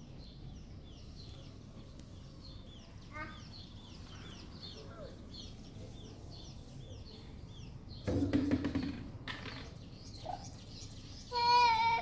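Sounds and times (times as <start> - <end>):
small bird chirping: 0.0 - 12.0
clear high bird call: 10.1 - 12.0.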